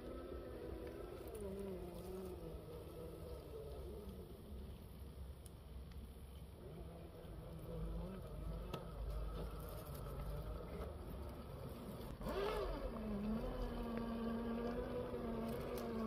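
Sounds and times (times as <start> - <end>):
toy car electric motor whining: 12.1 - 16.0.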